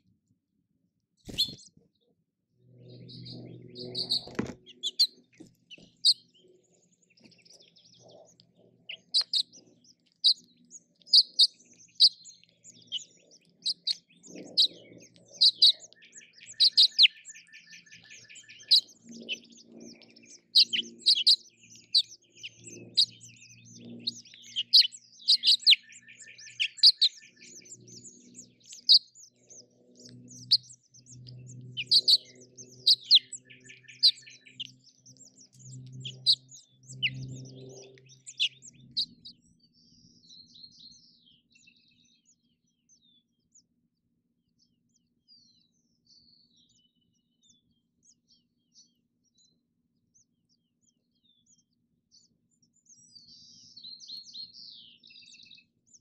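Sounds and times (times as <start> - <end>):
nestlings chirping and trilling: 1.2 - 1.8, 2.8 - 43.6.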